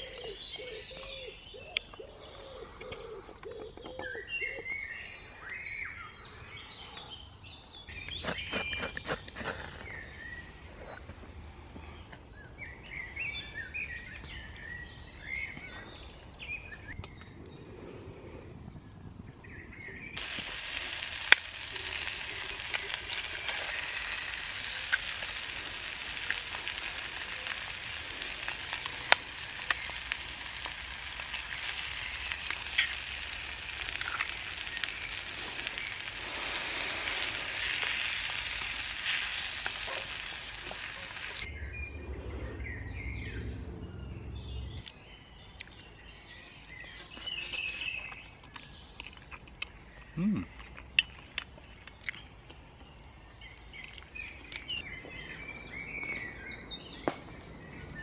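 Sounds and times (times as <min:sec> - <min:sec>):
food sizzling in a pan: 0:20.2 - 0:41.5.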